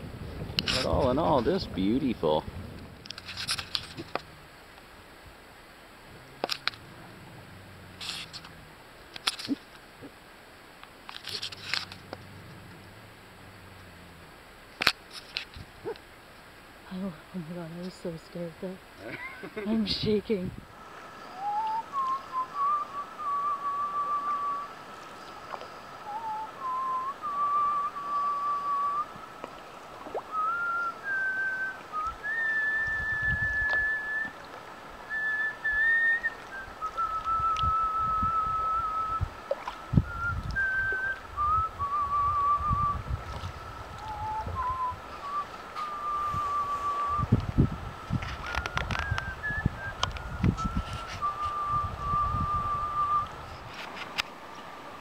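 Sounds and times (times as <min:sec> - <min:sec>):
person whistling a slow tune: 0:21.3 - 0:24.8, 0:26.0 - 0:29.2, 0:30.3 - 0:34.4, 0:35.1 - 0:39.3, 0:39.9 - 0:53.4.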